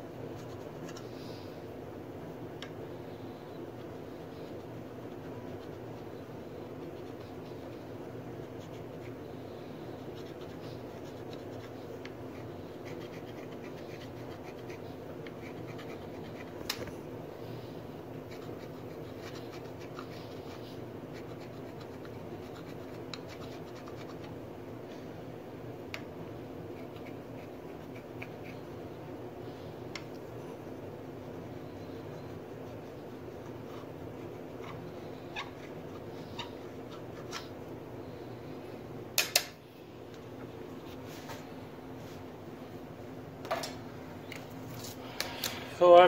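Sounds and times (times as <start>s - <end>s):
steady low hum: 0.0s - 46.0s
sharp click: 39.2s - 39.6s.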